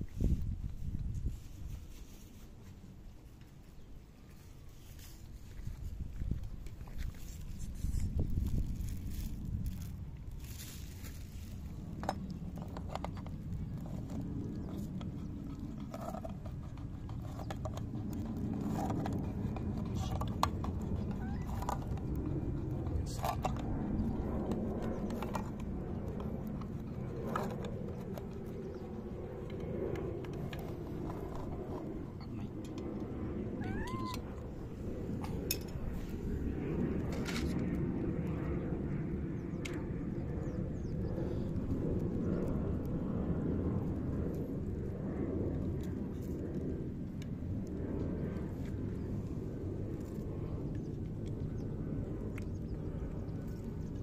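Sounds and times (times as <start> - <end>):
low background rumble: 0.0 - 54.0
cats crunching dry kibble: 0.4 - 38.9, 41.0 - 54.0
cats meowing: 21.0 - 21.6, 33.6 - 34.4.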